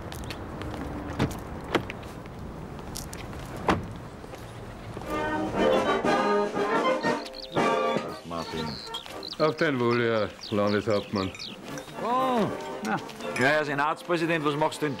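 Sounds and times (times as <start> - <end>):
traffic rumble: 0.0 - 6.1, 7.0 - 14.8
music with sustained notes: 5.0 - 9.7, 10.5 - 15.0.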